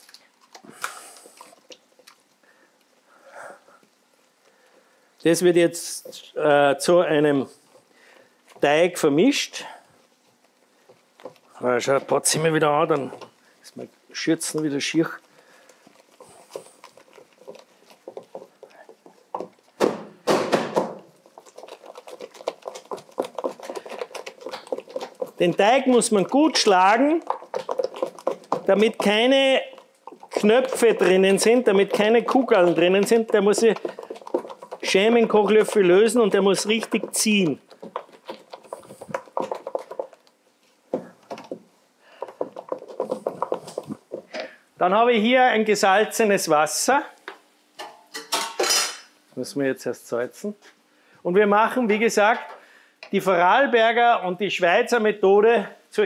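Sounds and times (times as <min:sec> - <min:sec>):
wooden spoon slapping dough in bowl: 0:05.2 - 0:46.5.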